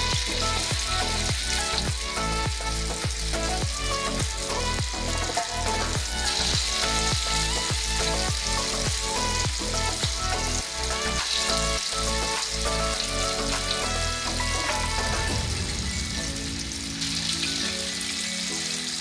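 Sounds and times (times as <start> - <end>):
background music with beat: 0.0 - 19.0
hot oil sizzling: 0.0 - 19.0.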